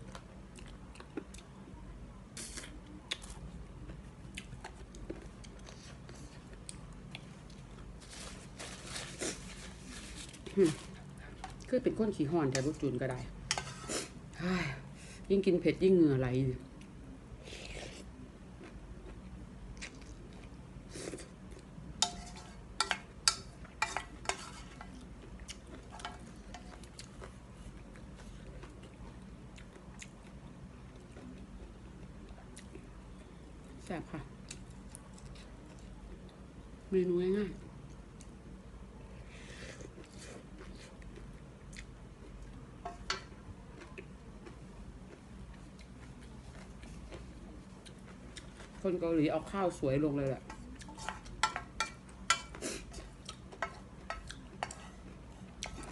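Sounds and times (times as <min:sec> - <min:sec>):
soft chewing: 0:00.0 - 0:12.9, 0:16.5 - 0:36.7, 0:37.6 - 0:49.1, 0:49.7 - 0:55.9
person chewing: 0:17.5 - 0:21.7, 0:24.8 - 0:33.2, 0:43.7 - 0:48.8, 0:52.2 - 0:55.9.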